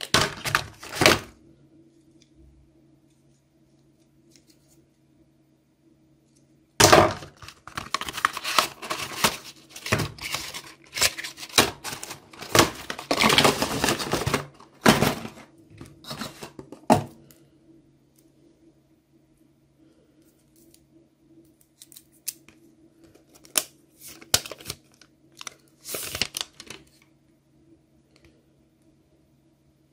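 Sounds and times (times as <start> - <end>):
cardboard and plastic wrap rustling: 0.0 - 1.3, 6.8 - 17.1, 24.0 - 27.0.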